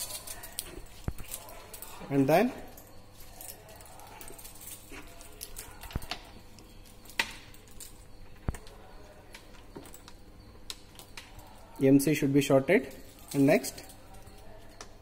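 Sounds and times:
wires rattling: 0.0s - 15.0s.

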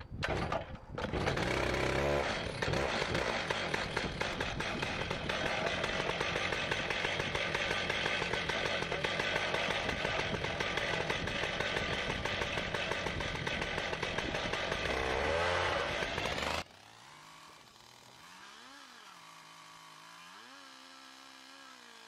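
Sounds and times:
chainsaw ripping through log: 0.2s - 22.0s.

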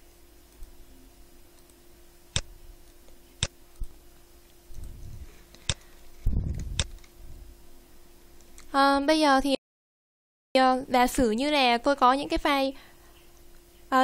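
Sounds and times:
computer mouse clicking: 6.5s - 7.1s.

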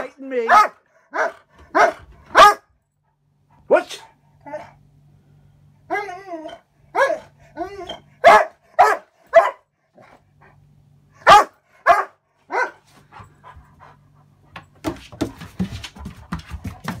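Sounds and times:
dog barking: 0.0s - 2.7s, 6.9s - 7.3s, 8.2s - 9.7s, 11.2s - 12.9s
dog scuffling and breathing: 12.8s - 17.0s.

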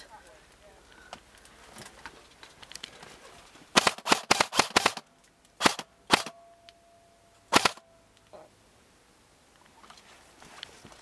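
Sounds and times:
airsoft rifle shots: 3.7s - 5.0s, 5.6s - 6.4s, 7.5s - 7.9s.

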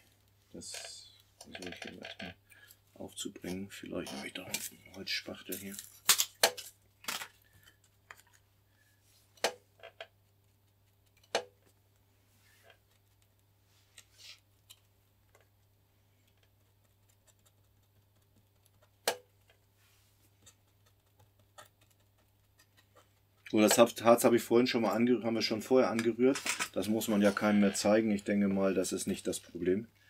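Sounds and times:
small tools clicking and tapping: 10.7s - 11.7s.

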